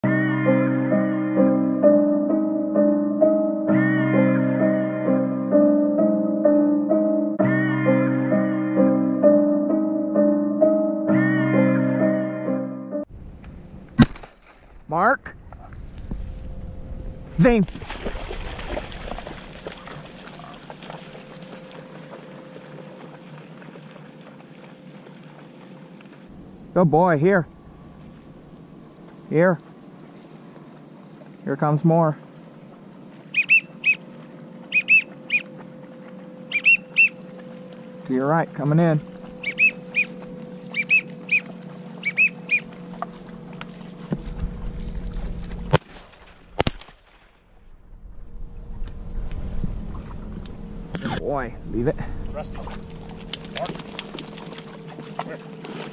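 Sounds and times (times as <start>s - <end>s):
sharp crack: 13.4s - 15.8s, 45.4s - 47.8s
shotgun firing: 14.0s - 14.8s, 45.7s - 47.4s
faint steady hum: 15.1s - 45.8s, 47.6s - 55.9s
dog splashing through water: 17.6s - 25.8s, 52.5s - 55.9s
whistled duck calls: 33.3s - 34.0s, 34.6s - 35.6s, 36.4s - 37.3s, 39.4s - 42.8s.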